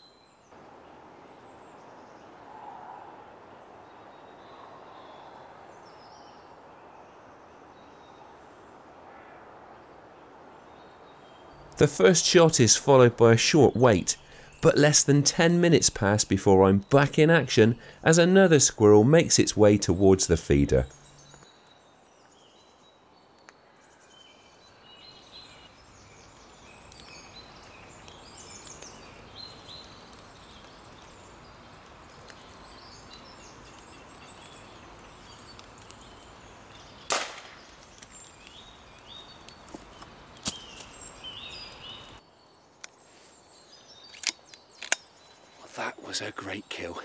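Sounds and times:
small birds chirping: 0.0s - 9.0s, 9.8s - 47.0s
air rifle shot crack: 37.1s - 37.7s.

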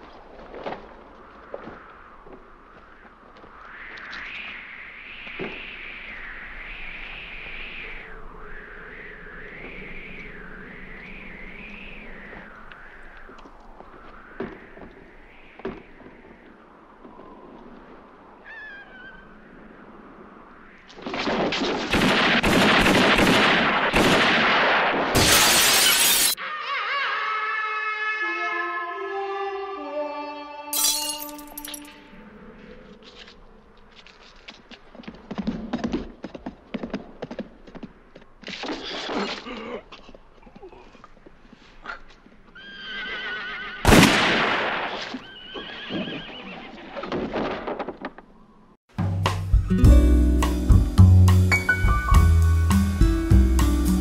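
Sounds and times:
gunshots with echo: 21.2s - 25.2s, 43.9s - 45.1s
window glass smashing: 25.2s - 26.4s, 30.8s - 31.9s
horse whinnying: 42.6s - 43.9s, 45.1s - 47.1s
film theme music: 49.0s - 54.0s.

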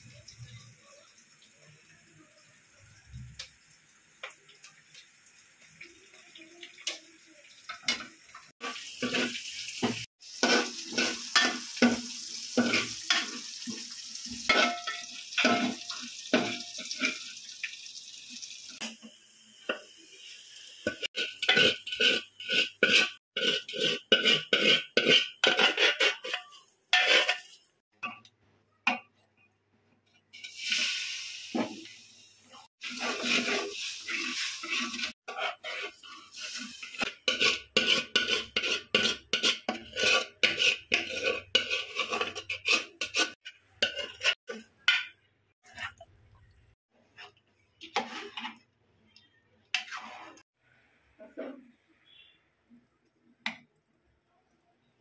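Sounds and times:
metal pots and ladle clattering: 7.7s - 13.5s, 14.5s - 17.3s, 20.9s - 28.2s, 32.8s - 46.0s.

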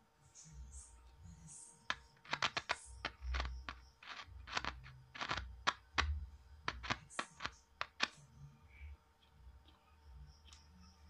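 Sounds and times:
clicks and crackles: 1.9s - 8.2s.

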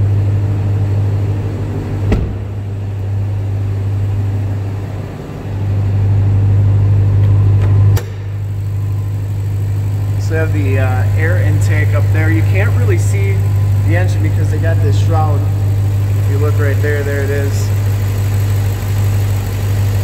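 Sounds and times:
engine idling hum: 0.0s - 20.0s.

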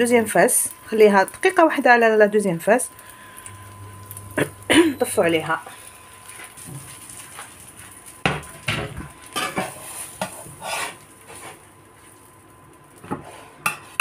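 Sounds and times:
metal spatula scraping frying pan: 9.3s - 11.6s.

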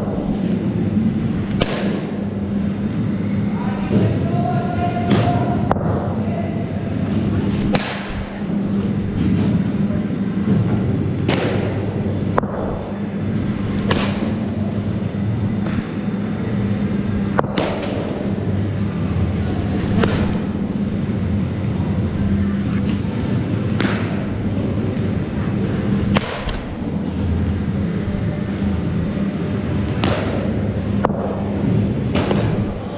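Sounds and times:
steady low hum: 0.0s - 32.9s
cricket bat hitting ball: 13.8s - 14.5s
balls thudding into netting: 13.8s - 14.8s.

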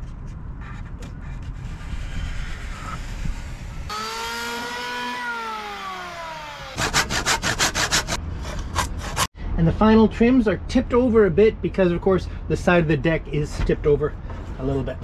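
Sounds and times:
electric planer whining: 2.5s - 6.9s
hand saw cutting wood: 3.9s - 9.3s.

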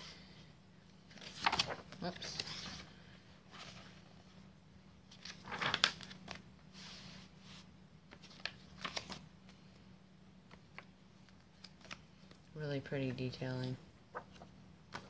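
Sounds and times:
paper pages being turned: 1.0s - 4.2s, 5.1s - 9.7s, 10.5s - 12.4s, 14.1s - 15.0s.

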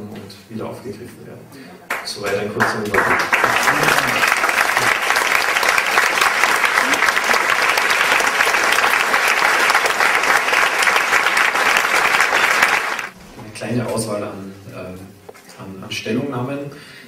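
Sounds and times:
audience applauding: 1.9s - 13.2s.

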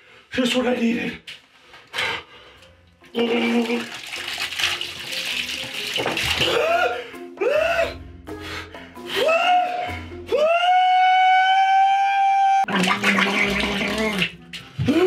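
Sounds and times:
music: 1.3s - 15.0s
milk gushing and splashing: 3.0s - 6.8s, 12.7s - 15.0s.

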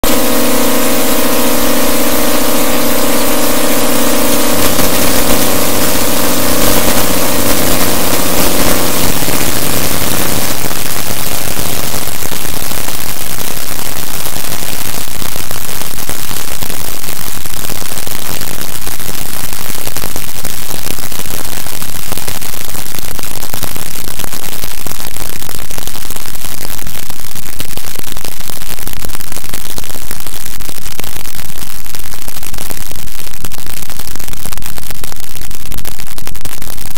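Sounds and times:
drone of held tones: 0.0s - 12.3s
static noise: 0.0s - 36.9s.

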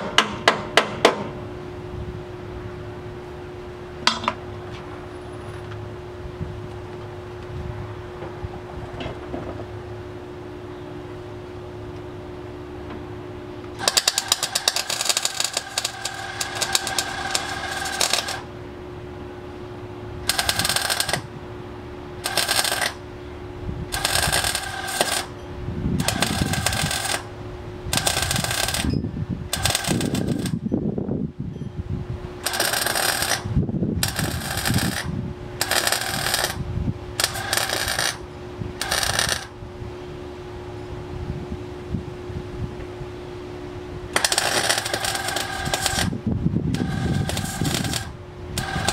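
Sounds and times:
steady hum: 0.0s - 48.9s
welding arc crackling: 13.8s - 18.5s, 20.2s - 21.3s, 22.2s - 23.0s, 23.9s - 25.4s, 26.0s - 28.9s, 29.5s - 30.6s, 32.4s - 36.6s, 37.2s - 39.6s, 44.1s - 48.9s.

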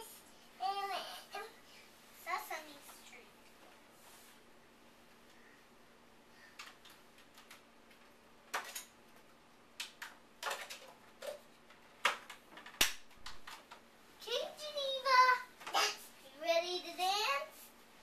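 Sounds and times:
hard toys clicking and knocking: 6.6s - 8.9s, 9.8s - 13.8s.

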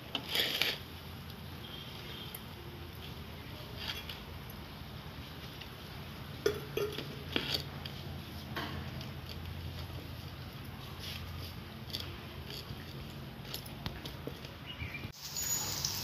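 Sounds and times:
steel bowl clinks and scrapes: 6.4s - 7.8s.

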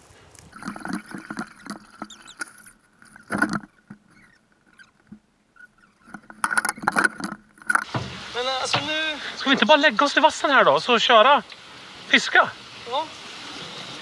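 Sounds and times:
paddle strokes in water: 0.0s - 9.4s
paddles knocking against hull: 0.5s - 9.0s.

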